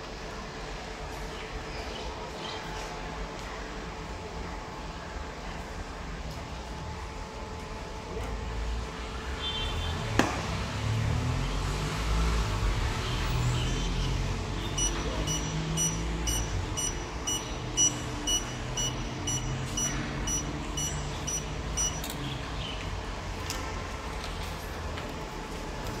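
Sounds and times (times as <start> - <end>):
card reader beeping: 13.7 - 22.4.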